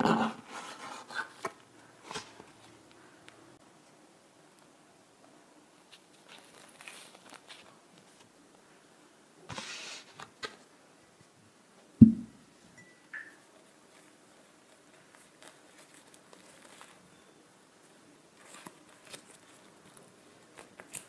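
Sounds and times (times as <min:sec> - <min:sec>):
paper tea bag rustling: 0:05.9 - 0:08.3, 0:13.8 - 0:17.2, 0:18.3 - 0:21.0
low thump: 0:12.0 - 0:12.4.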